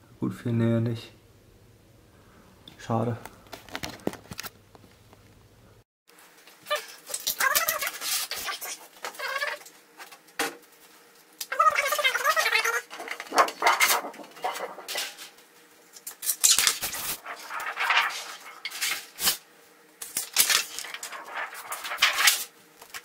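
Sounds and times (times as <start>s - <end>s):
plastic film sheets rustling: 3.4s - 4.5s, 12.9s - 15.4s, 16.1s - 19.4s, 20.0s - 23.0s.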